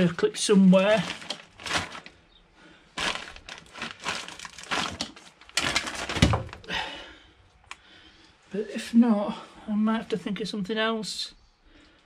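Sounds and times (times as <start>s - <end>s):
plastic bag crinkling: 0.0s - 6.8s.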